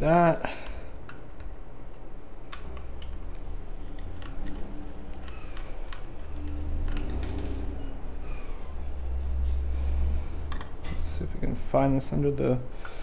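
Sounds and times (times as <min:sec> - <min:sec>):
screwdriver clicks on tiny screws: 0:02.5 - 0:07.7.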